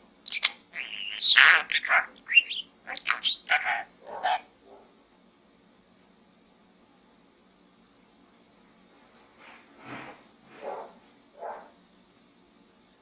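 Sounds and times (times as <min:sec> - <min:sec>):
budgerigar chattering: 0:00.3 - 0:04.5.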